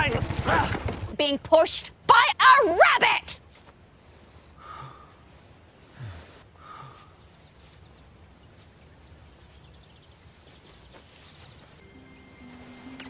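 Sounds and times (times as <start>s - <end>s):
faint bird chirps: 3.4s - 13.0s.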